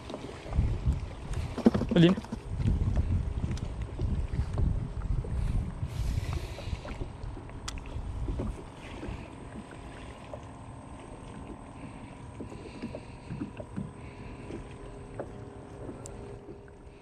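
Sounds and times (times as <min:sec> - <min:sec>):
wind rumbling on microphone: 0:00.0 - 0:09.8
faint steady hum: 0:00.1 - 0:17.0.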